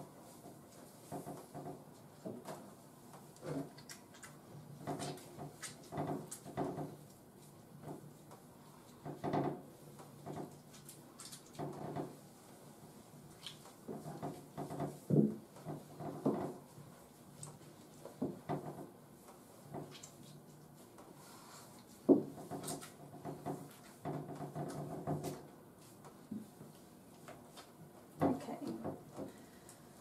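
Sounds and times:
hands rubbing wet dog coat: 0:12.4 - 0:14.4, 0:19.2 - 0:23.0.

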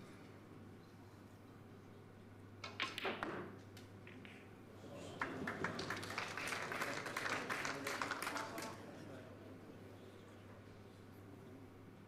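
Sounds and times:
balls clicking together: 0:02.6 - 0:04.5
cue striking ball: 0:02.6 - 0:04.5
audience applause: 0:05.2 - 0:08.8.

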